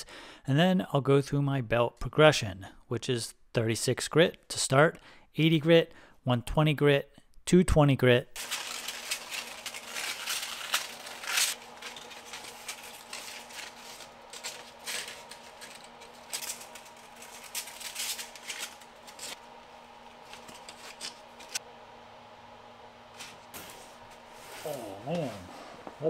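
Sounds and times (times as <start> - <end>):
belt grinder hum: 8.4 - 22.0.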